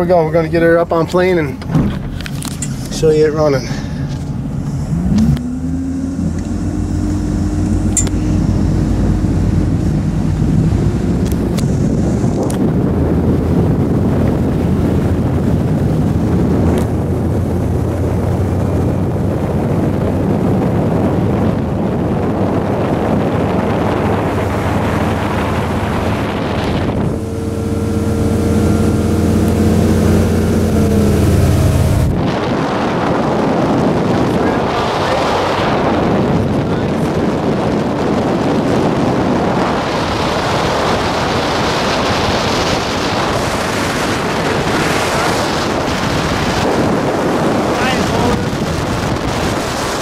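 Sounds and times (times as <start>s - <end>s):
boat engine running: 0.0s - 50.0s
wind buffeting microphone: 0.0s - 50.0s.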